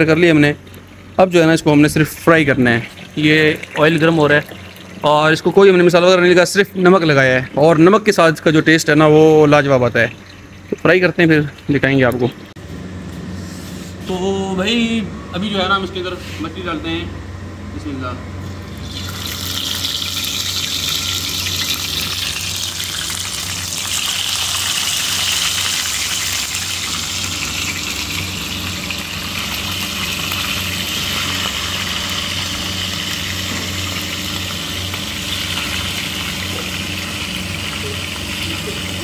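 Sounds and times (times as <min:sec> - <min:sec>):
steady low hum: 0:00.0 - 0:39.0
fish sizzling in hot oil: 0:18.8 - 0:39.0.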